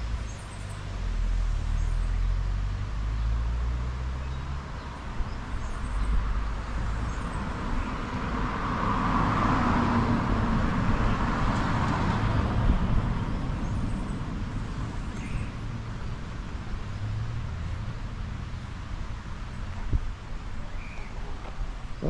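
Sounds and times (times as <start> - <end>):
vehicle passing: 6.2 - 15.0.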